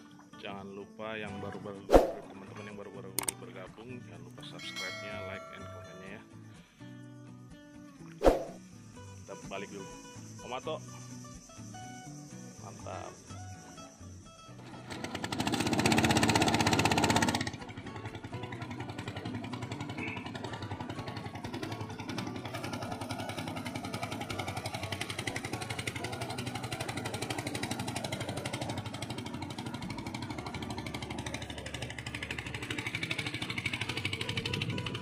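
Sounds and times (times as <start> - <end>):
motorcycle engine running: 14.6 - 35.0.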